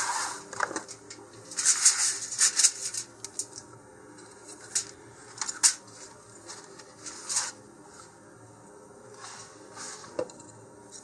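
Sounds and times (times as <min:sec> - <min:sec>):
aluminium foil crinkling: 0:00.8 - 0:03.7.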